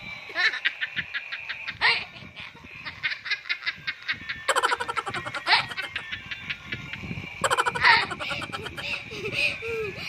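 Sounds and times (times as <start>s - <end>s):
young boy laughing: 0.3s - 6.8s, 7.4s - 10.0s.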